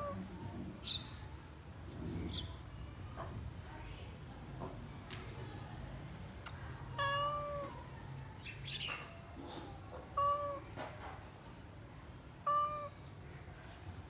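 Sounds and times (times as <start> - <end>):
cat meowing: 6.9 - 8.1, 10.0 - 10.8, 12.4 - 13.0.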